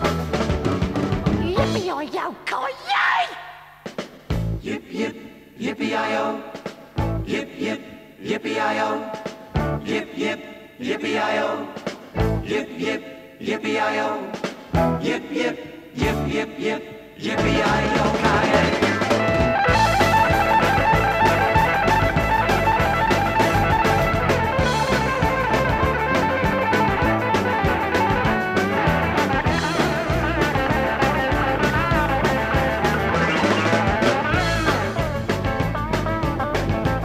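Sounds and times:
drum kit beat: 0:00.0 - 0:02.1, 0:03.7 - 0:04.7, 0:06.5 - 0:07.3, 0:14.4 - 0:15.1, 0:17.3 - 0:37.0
electric guitars: 0:18.0 - 0:37.0
lead guitar bending notes: 0:18.8 - 0:37.0.

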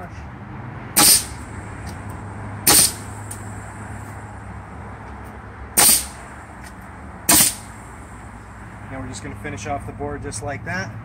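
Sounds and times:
nail gun firing: 0:01.0 - 0:01.4, 0:02.7 - 0:03.2, 0:05.8 - 0:06.2, 0:07.3 - 0:07.7.

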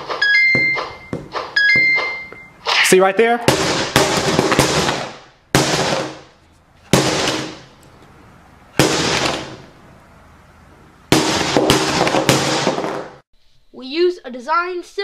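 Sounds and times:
loud sudden bangs: 0:02.8 - 0:06.3, 0:06.9 - 0:07.7, 0:08.7 - 0:09.7, 0:11.1 - 0:13.2.

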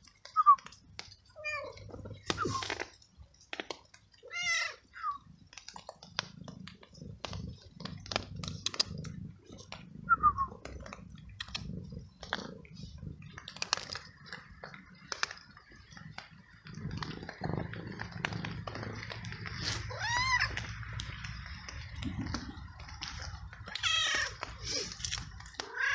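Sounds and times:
cat crunching dry kibble: 0:00.0 - 0:25.9
cat mewing: 0:19.6 - 0:20.7, 0:23.7 - 0:25.0, 0:25.6 - 0:25.9.

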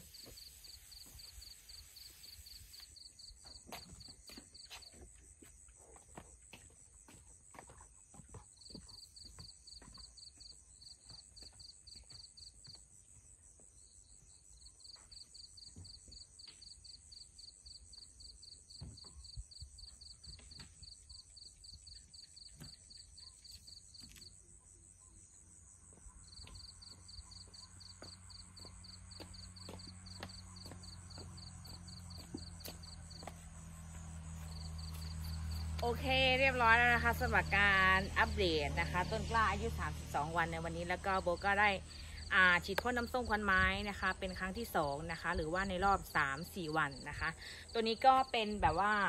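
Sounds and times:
high insect whine: 0:00.0 - 0:03.4, 0:20.8 - 0:35.8
crickets trilling: 0:00.0 - 0:05.4, 0:13.8 - 0:40.0.

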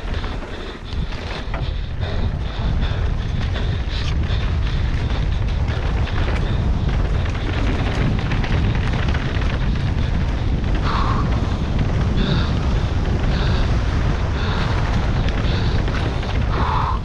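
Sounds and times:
bike clattering and rattling: 0:00.0 - 0:17.0
tyres rumbling on dirt: 0:00.0 - 0:17.0
wind buffeting microphone: 0:00.0 - 0:17.0.

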